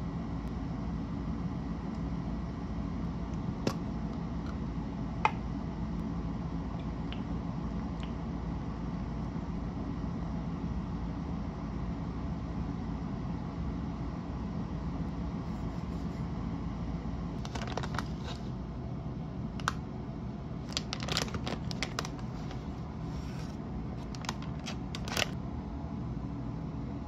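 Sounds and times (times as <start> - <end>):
low background rumble: 0.0 - 27.0
plastic pouch crinkling: 17.4 - 18.4, 20.6 - 25.4.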